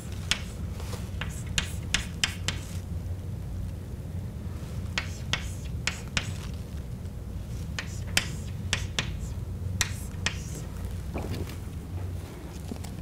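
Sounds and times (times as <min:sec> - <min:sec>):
chalk tapping on blackboard: 0:00.0 - 0:02.8, 0:04.9 - 0:06.5, 0:07.5 - 0:10.6
steady low hum: 0:00.0 - 0:13.0.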